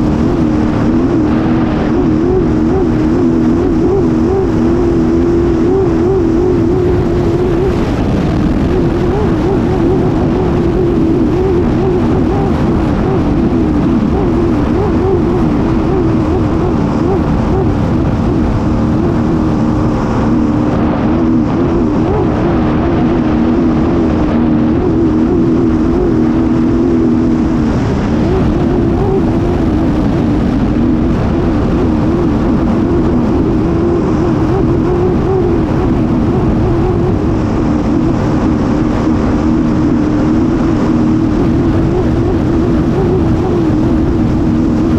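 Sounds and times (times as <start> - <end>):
boat engine running hard: 0.0 - 44.9
rush of wind and spray: 0.0 - 44.9.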